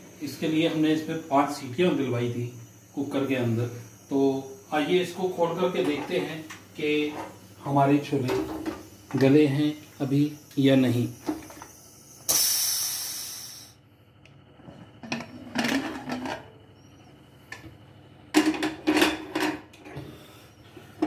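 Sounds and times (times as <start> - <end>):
steam hissing from pressure cooker: 0.0 - 13.8.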